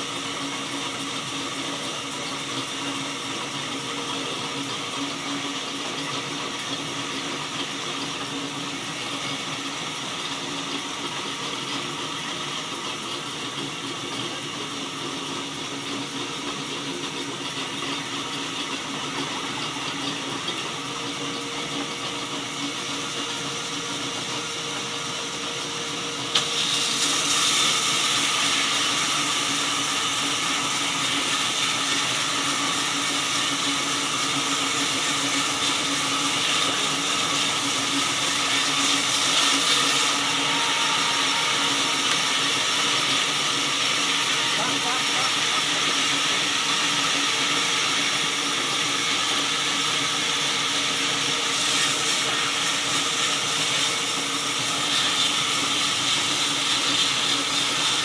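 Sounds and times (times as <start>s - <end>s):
band saw running: 0.0s - 58.0s
saw blade cutting log: 26.3s - 58.0s.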